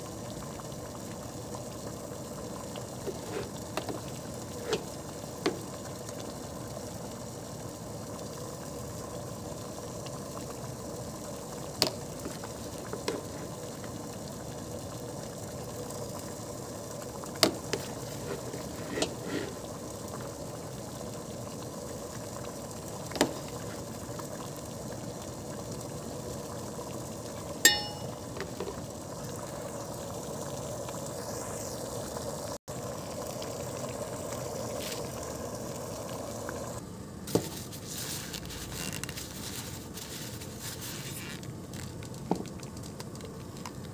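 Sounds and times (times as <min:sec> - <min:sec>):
tableware clinking: 0:27.7 - 0:28.2.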